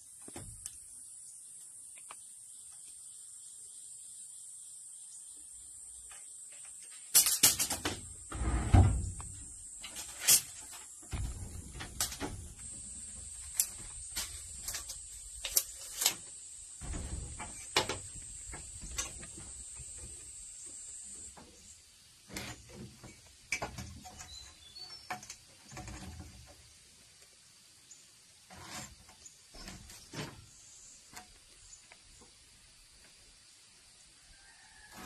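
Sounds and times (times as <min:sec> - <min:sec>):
heavy thud: 0:11.1 - 0:12.7
wood and tools knocking: 0:16.8 - 0:20.2, 0:22.3 - 0:26.5.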